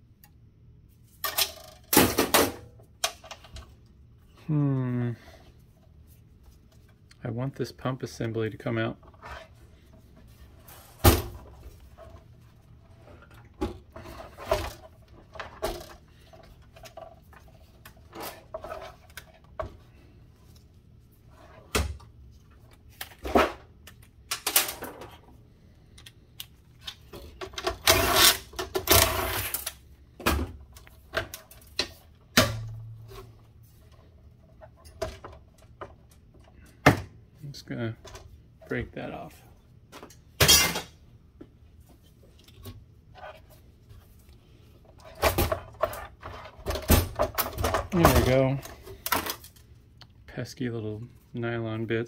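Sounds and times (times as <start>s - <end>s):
metal parts rattling and scraping: 26.8s - 29.8s.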